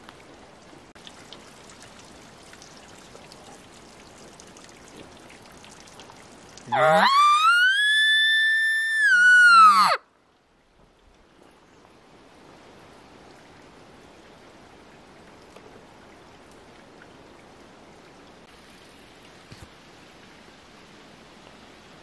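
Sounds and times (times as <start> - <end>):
elk bugling: 6.7 - 10.0.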